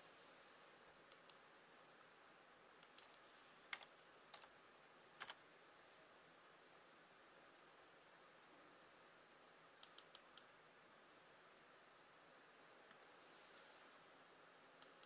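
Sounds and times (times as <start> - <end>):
faint room hiss: 0.0 - 15.0
computer mouse double-clicks: 9.8 - 10.5, 14.8 - 15.0.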